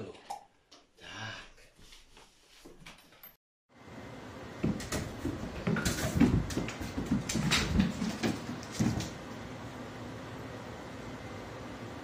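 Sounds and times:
pet paws thumping on wooden floor: 4.6 - 9.3.

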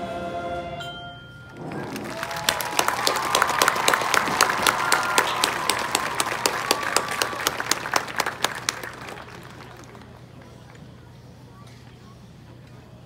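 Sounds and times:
audience applauding: 1.5 - 10.9
people cheering: 1.5 - 11.0.

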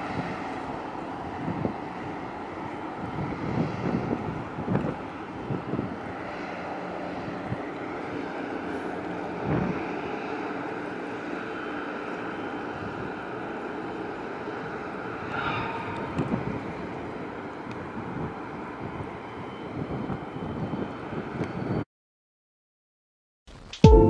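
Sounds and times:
wind buffeting microphone: 0.0 - 21.8
brief higher tone: 23.6 - 24.0.

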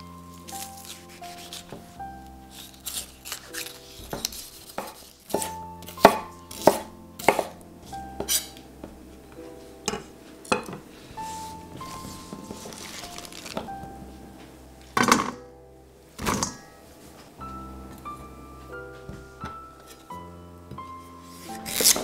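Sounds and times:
soft background music: 0.0 - 22.0
knife striking wooden cutting board: 4.1 - 7.6.

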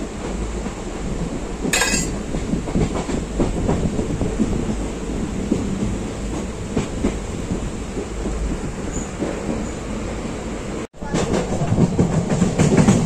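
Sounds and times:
train rumbling: 0.0 - 13.0
train wheels knocking on rails: 11.0 - 13.0.

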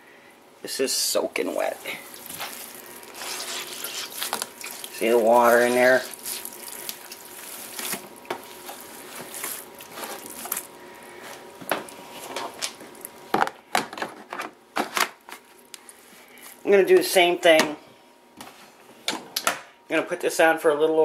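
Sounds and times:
wet towels squelching and dripping: 1.6 - 10.7.

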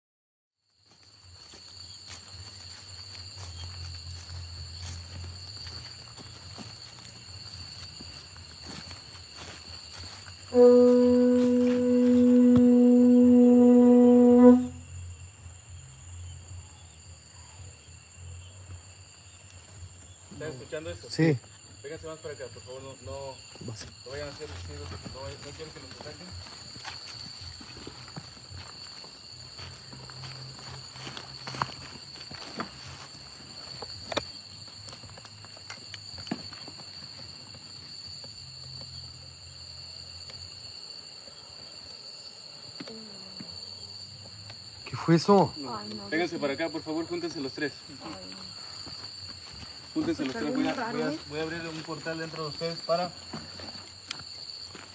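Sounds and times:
crickets chirring: 0.6 - 54.9
footsteps crunching dry leaves: 0.8 - 12.6, 23.9 - 38.5, 47.8 - 54.9
long horn note: 10.5 - 14.8.

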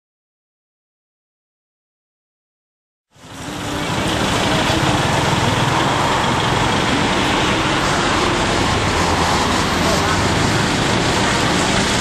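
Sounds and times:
street traffic: 3.1 - 12.0.

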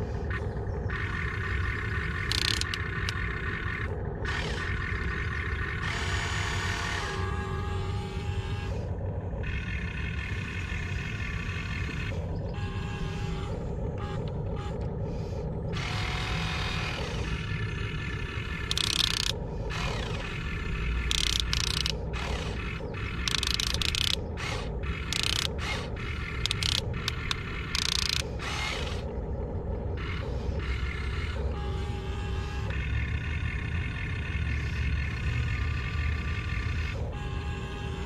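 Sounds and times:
low rumble: 0.0 - 38.0
toy motors whirring and ratcheting: 0.9 - 5.0, 15.7 - 29.1, 30.0 - 31.4.

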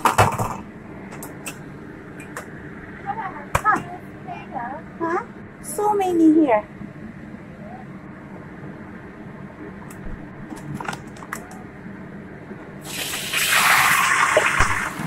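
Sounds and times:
chicken sizzling in oil: 12.8 - 15.0.

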